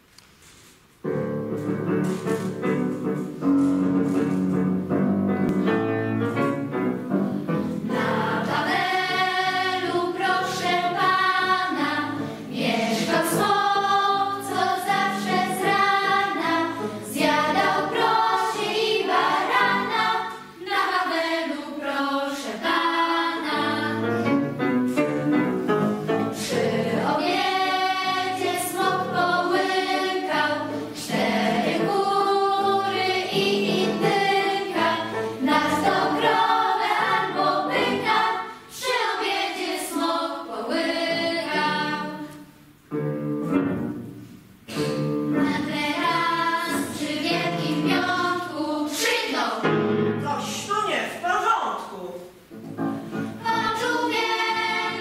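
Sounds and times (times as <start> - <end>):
piano: 0.0 - 50.9, 52.2 - 55.0
children's choir singing: 7.0 - 42.6, 44.7 - 50.0, 52.8 - 55.0.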